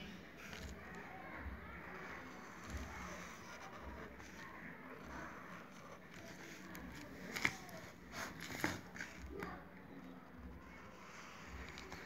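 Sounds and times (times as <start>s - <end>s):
marker pen scratching on paper: 1.9s - 7.1s.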